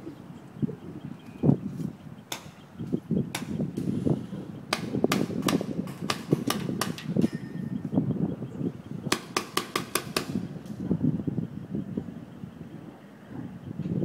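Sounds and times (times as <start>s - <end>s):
paintball markers firing: 4.7s - 7.2s, 9.1s - 10.5s.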